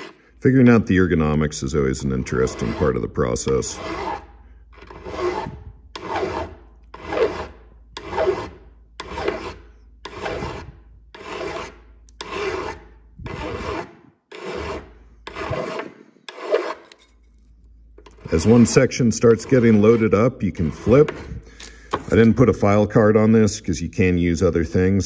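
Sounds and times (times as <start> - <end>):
file rasping on metal: 0.0 - 0.3, 2.0 - 17.0, 18.0 - 22.2.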